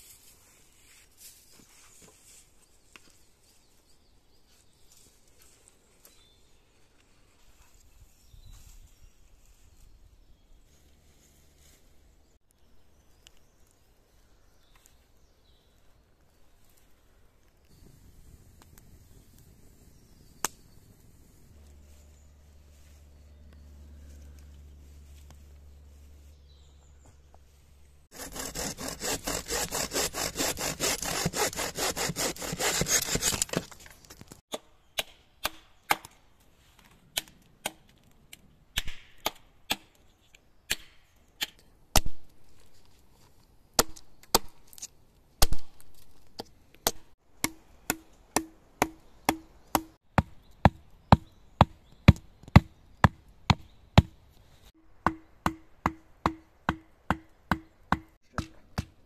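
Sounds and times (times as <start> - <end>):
sharp blows on wood: 28.1 - 33.6, 46.8 - 54.2, 55.0 - 59.0
hand saw cutting wood: 28.1 - 33.8.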